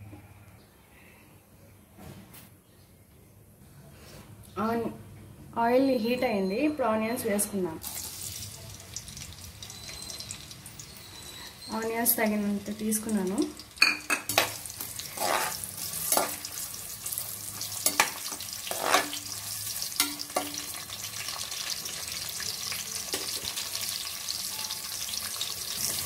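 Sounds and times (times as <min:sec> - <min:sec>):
onions sizzling in hot oil: 0:07.8 - 0:26.0
metal spoon scraping a pot: 0:13.8 - 0:16.5, 0:17.7 - 0:20.7.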